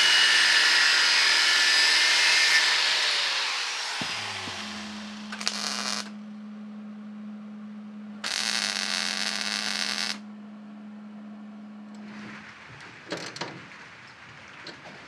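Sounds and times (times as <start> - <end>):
steady low hum: 3.7 - 15.0
welding arc crackle: 4.0 - 6.2, 8.2 - 10.2.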